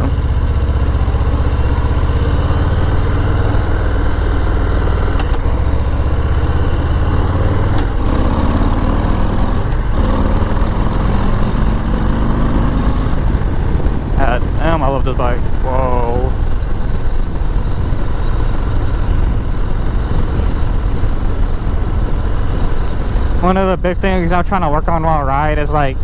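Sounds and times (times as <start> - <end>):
motorcycle engine accelerating: 0.0 - 26.0
wind noise on microphone: 7.4 - 23.4.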